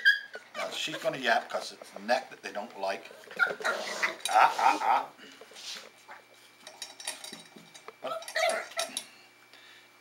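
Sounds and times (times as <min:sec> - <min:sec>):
puppy yapping: 0:00.0 - 0:00.9, 0:08.1 - 0:08.9
small clinks: 0:06.6 - 0:09.1.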